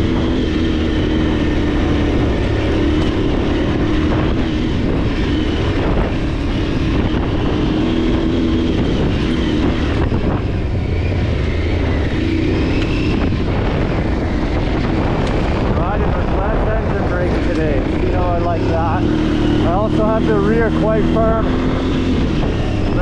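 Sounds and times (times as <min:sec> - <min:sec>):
low rumble: 0:00.0 - 0:23.0
motorcycle engine running: 0:00.0 - 0:23.0.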